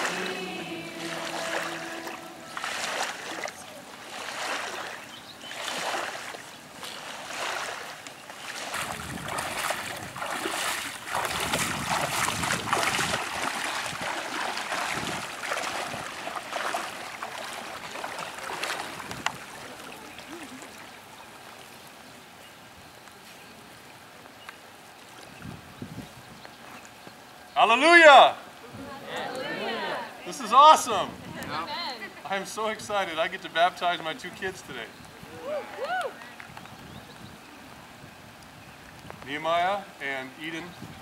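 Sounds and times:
legs wading through water: 0.0 - 27.4.

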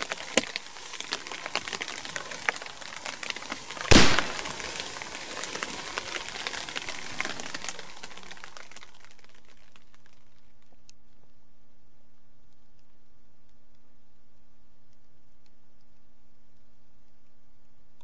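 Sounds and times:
rain dripping on foliage: 0.0 - 17.4
handgun shot with echo: 3.9 - 4.6.

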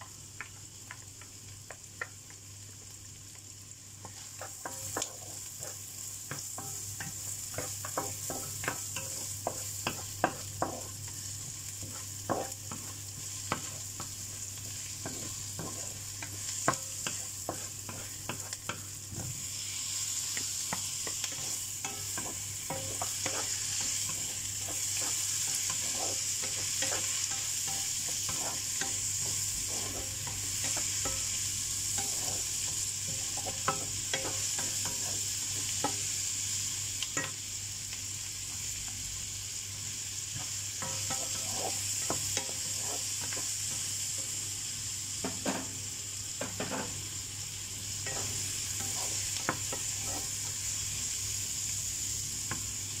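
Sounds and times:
meat sizzling in oil: 0.0 - 53.0
wooden spatula scraping pan: 22.2 - 27.2, 28.1 - 30.8, 40.9 - 43.4, 49.8 - 50.4.

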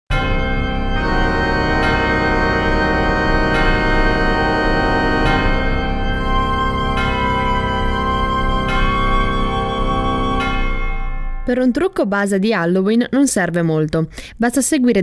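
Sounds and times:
organ chords: 0.1 - 11.5.

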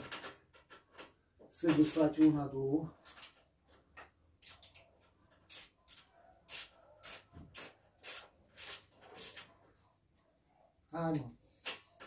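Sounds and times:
ratchet wrench clicking: 4.4 - 4.8, 5.5 - 9.3.

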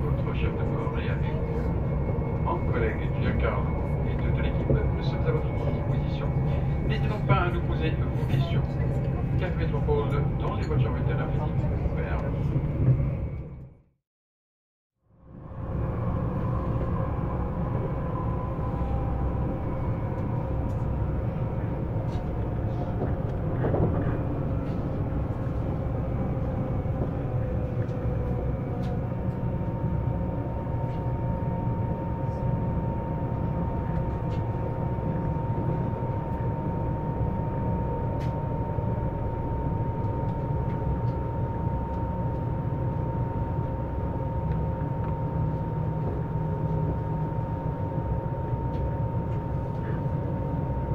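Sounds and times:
wheels rumbling on rails: 15.2 - 50.9
traction inverter whining: 15.4 - 50.9.

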